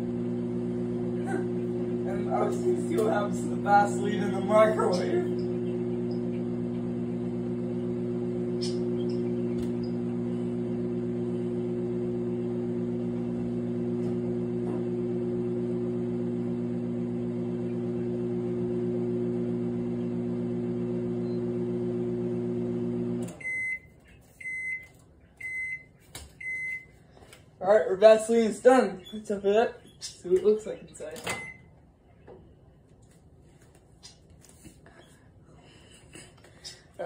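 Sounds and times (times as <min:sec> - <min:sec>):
microwave oven humming: 0:00.0 - 0:27.0.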